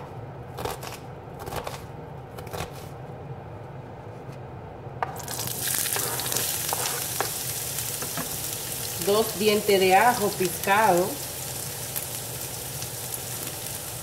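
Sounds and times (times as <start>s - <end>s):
onion sizzling in oil: 5.2s - 14.0s.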